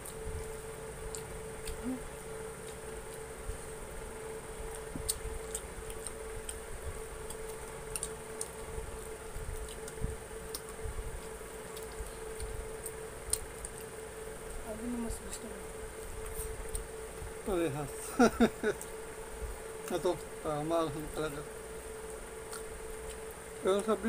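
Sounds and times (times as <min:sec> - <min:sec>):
chewing and lip smacks: 0:00.0 - 0:03.3, 0:04.6 - 0:14.0, 0:22.0 - 0:24.0
steady hum: 0:00.0 - 0:24.0.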